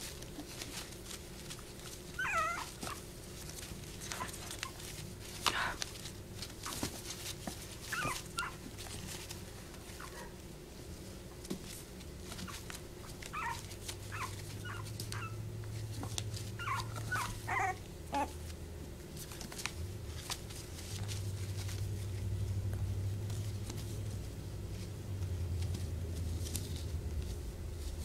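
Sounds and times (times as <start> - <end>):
puppies whimpering and yipping: 1.8 - 5.0, 7.7 - 9.3, 12.3 - 18.4.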